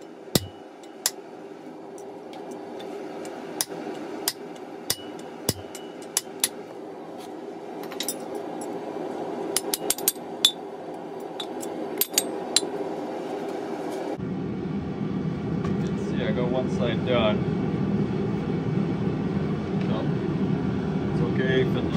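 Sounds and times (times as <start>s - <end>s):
hammer striking steel on anvil: 0.0s - 1.2s, 2.4s - 6.6s, 9.5s - 10.6s, 11.4s - 12.7s.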